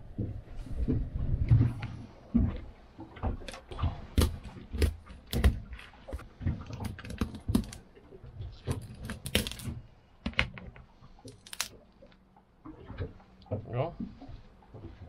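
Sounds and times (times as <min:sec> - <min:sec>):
shell crackling: 0:08.7 - 0:10.6, 0:11.2 - 0:12.2.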